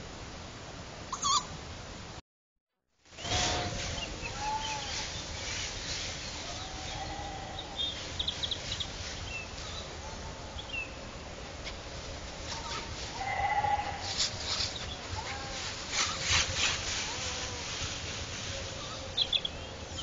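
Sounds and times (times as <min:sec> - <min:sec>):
microphone hiss: 0:00.0 - 0:02.2, 0:03.0 - 0:20.0
animal calls rising and falling: 0:01.1 - 0:01.5.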